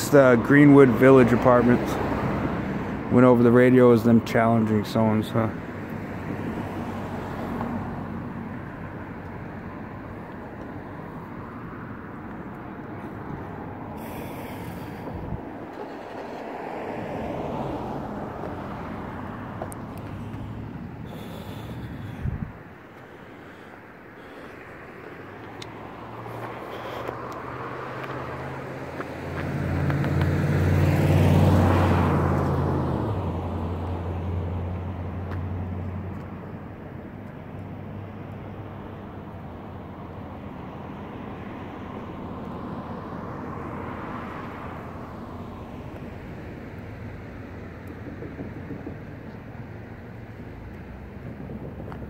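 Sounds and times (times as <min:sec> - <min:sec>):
faint vehicle passing: 0:00.0 - 0:36.7
car driving past: 0:10.7 - 0:22.4, 0:23.4 - 0:36.1.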